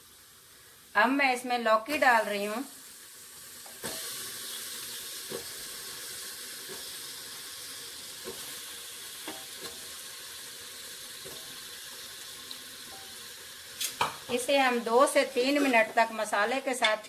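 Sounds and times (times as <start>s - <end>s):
masala sizzling in a pressure cooker: 0.0s - 17.0s.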